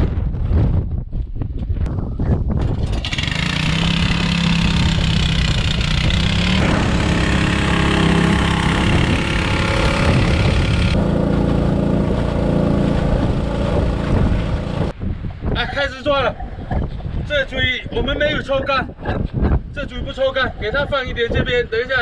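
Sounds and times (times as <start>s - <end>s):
water pump engine running: 2.8s - 14.9s.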